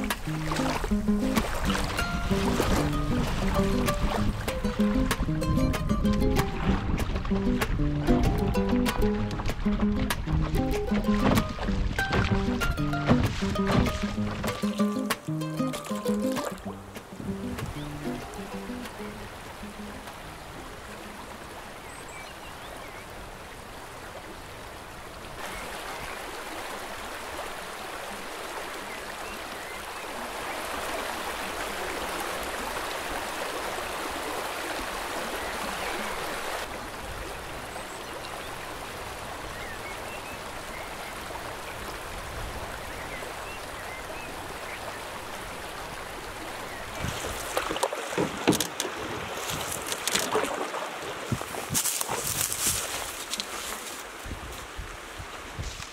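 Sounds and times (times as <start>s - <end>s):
river rushing over stones: 0.0s - 55.6s
sharp knocks and clicks: 4.4s - 15.2s, 48.2s - 48.9s.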